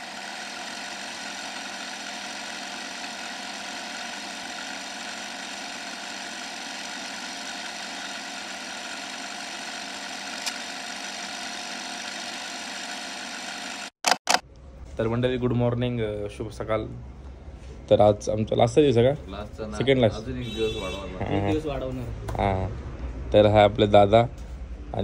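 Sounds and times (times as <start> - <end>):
engine hum: 0.0 - 11.8.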